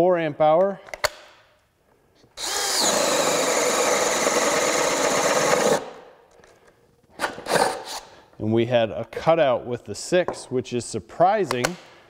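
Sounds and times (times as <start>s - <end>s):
drill boring into wood: 2.4s - 5.9s.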